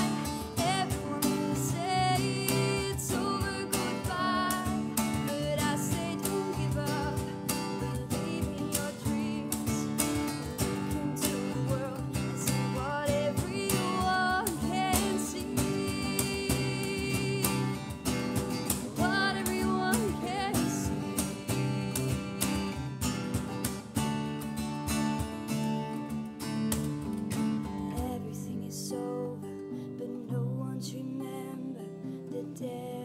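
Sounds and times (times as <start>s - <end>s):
woman singing: 0.0s - 23.7s, 27.6s - 33.0s
cajon beat: 0.0s - 28.2s
strummed acoustic guitars: 0.0s - 33.0s.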